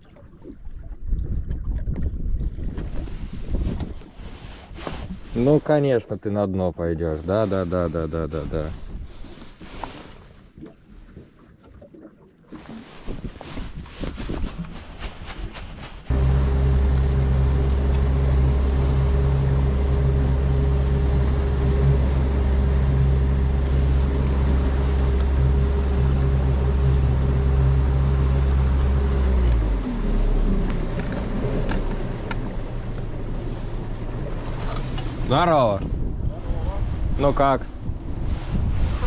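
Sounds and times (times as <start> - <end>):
outboard motor running: 16.1 - 36.3.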